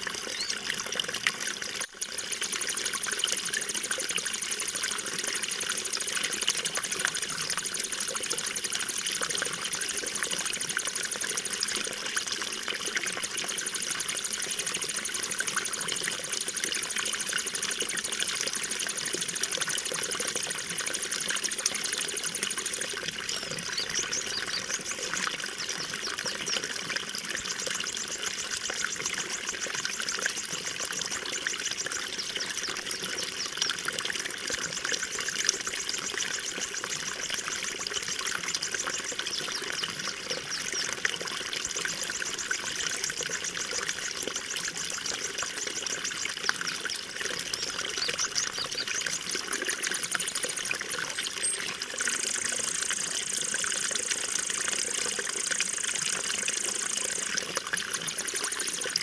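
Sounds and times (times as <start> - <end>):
water trickling and splashing: 0.0 - 59.0.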